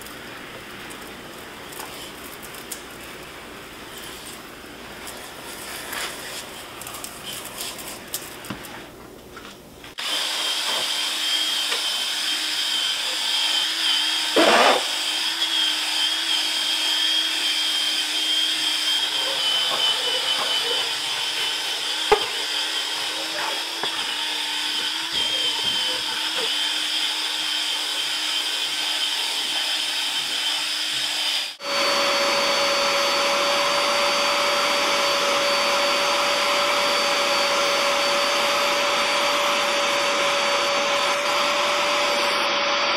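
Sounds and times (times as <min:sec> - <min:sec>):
power drill motor whining: 0:10.0 - 0:42.9
vacuum motor running: 0:10.0 - 0:42.9.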